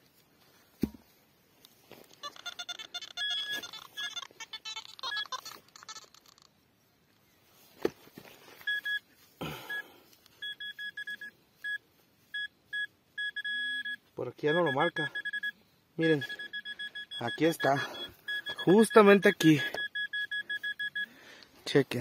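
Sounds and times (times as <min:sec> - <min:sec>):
metal detector tones: 0:01.9 - 0:06.5, 0:08.6 - 0:21.2
pinpointer short beeps: 0:02.2 - 0:05.6, 0:08.7 - 0:09.0, 0:10.4 - 0:21.1.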